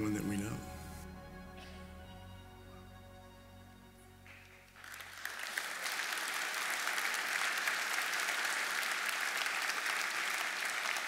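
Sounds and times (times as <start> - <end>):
crowd applauding: 4.2 - 11.0.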